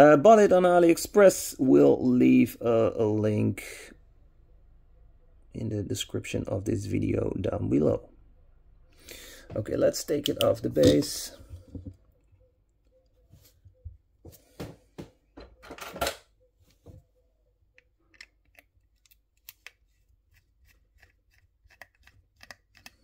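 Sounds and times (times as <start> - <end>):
handling clicks and scrapes: 17.7 - 23.0.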